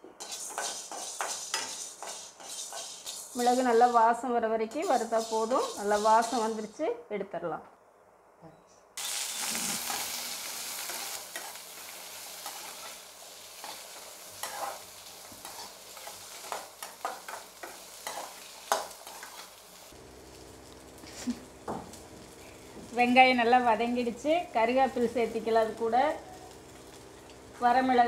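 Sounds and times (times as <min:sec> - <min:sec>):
spatula scraping metal pan: 0:00.2 - 0:04.0, 0:04.7 - 0:06.6, 0:13.6 - 0:14.8, 0:15.4 - 0:19.5
shallots sizzling in pan: 0:00.2 - 0:04.1, 0:04.7 - 0:06.8, 0:09.0 - 0:28.0.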